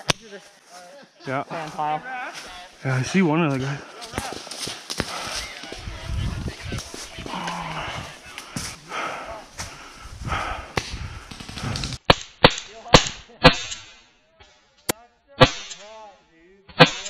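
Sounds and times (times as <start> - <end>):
rustling and movement: 0.0 - 12.1
paintball marker shots: 10.7 - 14.0, 15.4 - 15.9, 16.7 - 17.0
sharp pops: 10.7 - 14.0, 15.4 - 15.9, 16.7 - 17.0.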